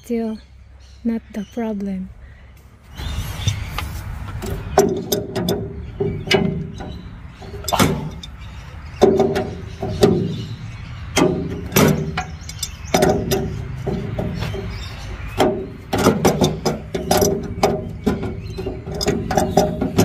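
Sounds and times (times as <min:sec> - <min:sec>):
wrench scraping metal: 0:04.4 - 0:10.6, 0:11.2 - 0:20.0.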